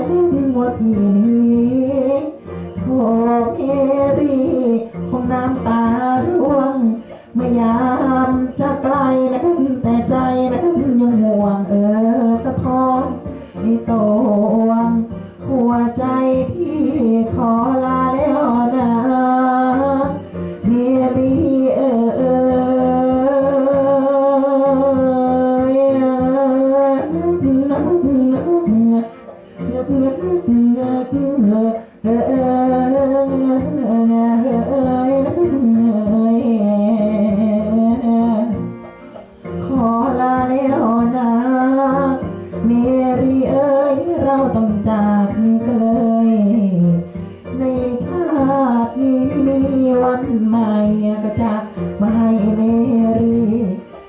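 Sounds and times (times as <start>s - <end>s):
musical backing: 0.0s - 54.0s
person singing hoarsely: 0.0s - 54.0s
singer breathing: 2.4s - 2.8s, 7.0s - 7.4s, 13.3s - 13.6s, 31.8s - 32.0s, 47.1s - 47.5s.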